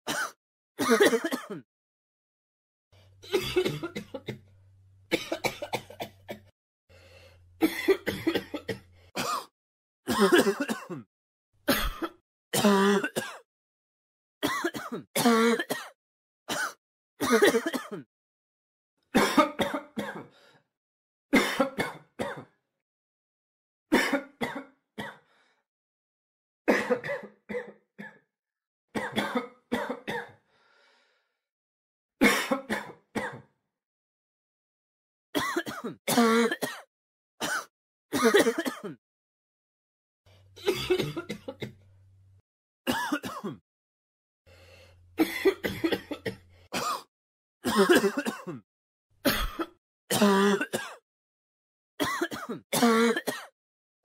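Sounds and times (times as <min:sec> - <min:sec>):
person coughing: 0:00.1 - 0:01.7, 0:03.2 - 0:04.4, 0:05.1 - 0:06.5, 0:07.6 - 0:09.5, 0:10.1 - 0:11.1, 0:11.7 - 0:13.5, 0:14.4 - 0:18.1, 0:19.2 - 0:20.3, 0:21.4 - 0:22.6, 0:24.0 - 0:25.2, 0:26.7 - 0:28.2, 0:29.0 - 0:30.4, 0:32.2 - 0:33.5, 0:35.4 - 0:39.0, 0:40.6 - 0:41.8, 0:42.9 - 0:43.6, 0:45.2 - 0:48.6, 0:49.3 - 0:51.0, 0:52.0 - 0:53.5.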